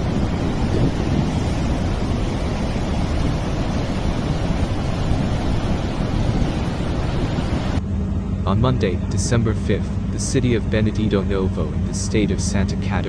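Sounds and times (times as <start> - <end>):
floodwater rushing: 0.0 - 7.8.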